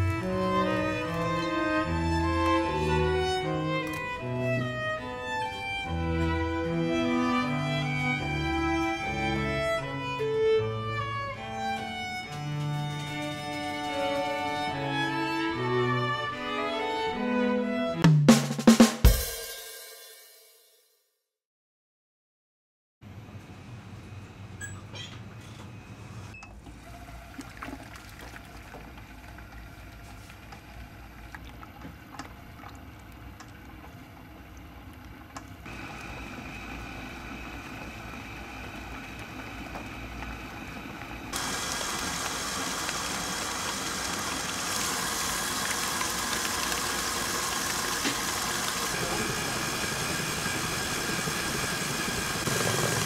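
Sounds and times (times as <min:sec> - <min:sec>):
stand mixer whisking batter: 0:26.7 - 0:53.0.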